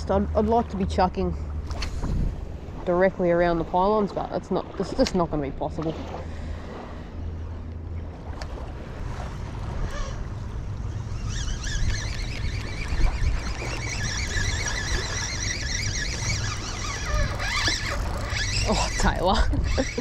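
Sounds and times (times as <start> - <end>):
wind rumble on microphone: 0.0 - 20.0
fishing reel whirring: 9.7 - 20.0.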